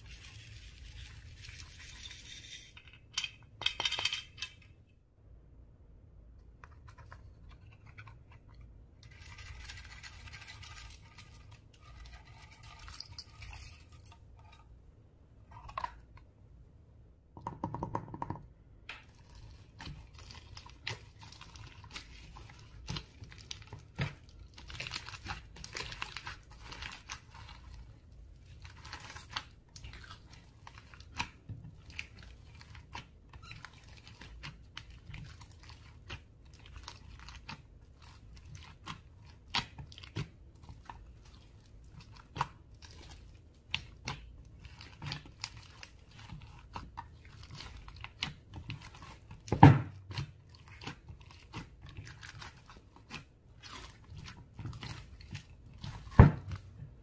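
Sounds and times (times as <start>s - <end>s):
hands squishing slime: 18.9s - 57.0s.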